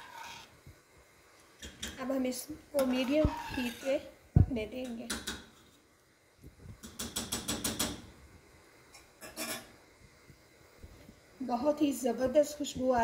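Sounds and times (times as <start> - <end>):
kitchenware tapping a pot: 6.8 - 8.1.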